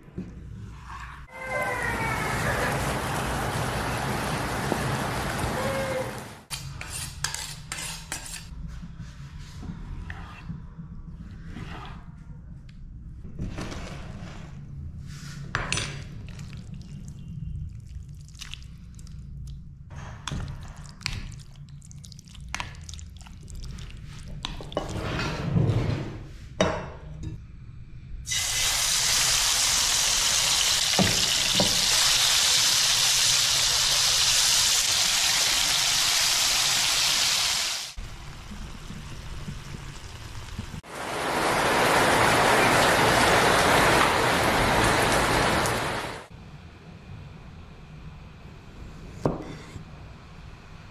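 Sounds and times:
steady rain: 1.4s - 6.5s, 36.7s - 46.3s
frying pan sizzling: 28.3s - 46.3s.

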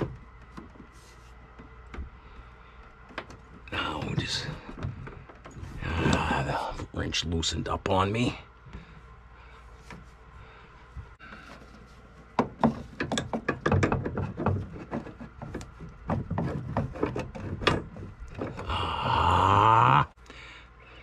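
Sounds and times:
wrench scraping and clicking on pipe fitting: 12.5s - 18.6s.

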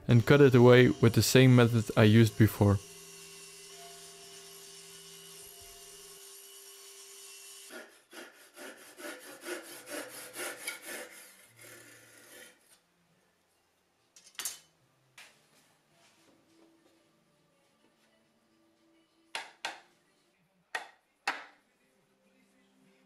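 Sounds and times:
table saw humming: 0.2s - 10.9s
handsaw cutting wood: 0.4s - 12.6s.

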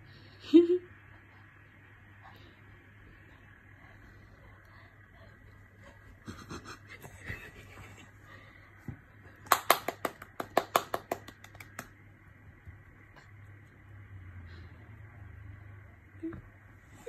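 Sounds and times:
baby clapping hands: 9.4s - 11.9s.

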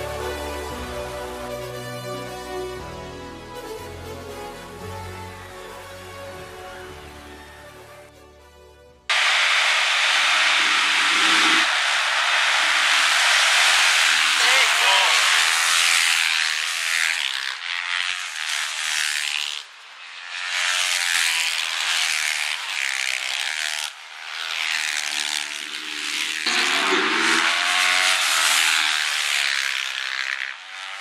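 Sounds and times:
motorcycles racing past: 9.1s - 31.0s.

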